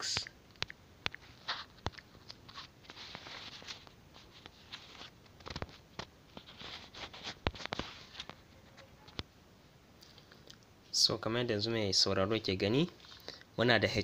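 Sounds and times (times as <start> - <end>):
soft rustling: 1.1 - 9.3.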